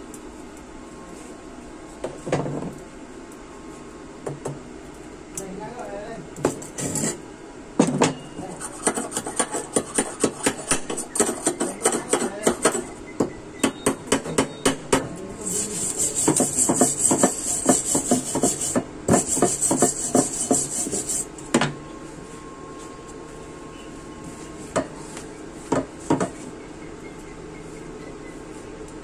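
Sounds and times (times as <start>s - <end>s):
wire brush scrubbing metal: 8.5s - 12.9s, 15.4s - 21.3s
chipping hammer tapping metal: 8.6s - 21.2s.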